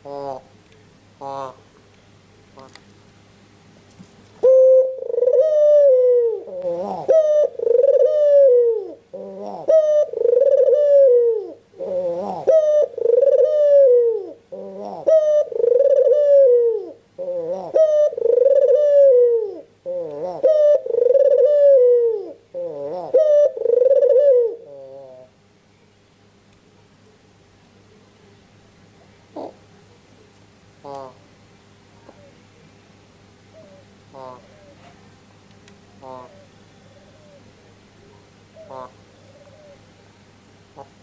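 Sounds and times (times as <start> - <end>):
dove cooing: 0.0 - 0.5, 1.2 - 1.7, 4.4 - 25.4, 29.0 - 29.7, 30.8 - 31.3, 32.0 - 32.6, 33.4 - 35.0, 36.0 - 39.9, 40.8 - 41.0.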